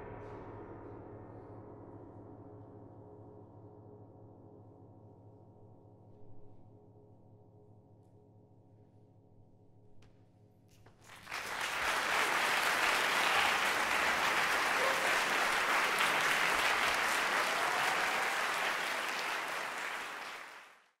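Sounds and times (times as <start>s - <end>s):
audience applause: 11.0s - 21.0s.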